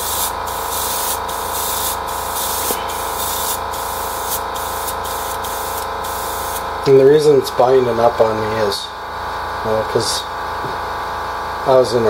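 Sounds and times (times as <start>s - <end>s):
airbrush spraying hiss: 0.0s - 6.6s
steady hum: 0.0s - 12.0s.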